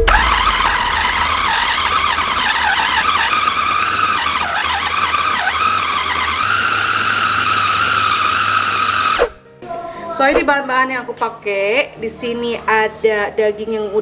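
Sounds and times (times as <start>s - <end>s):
electric food chopper motor whining: 0.0s - 9.4s.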